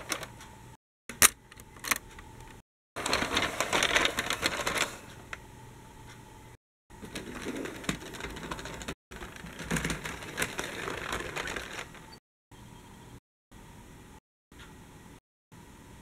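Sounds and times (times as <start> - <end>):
toy tram rattling on plastic track: 7.0 - 12.0.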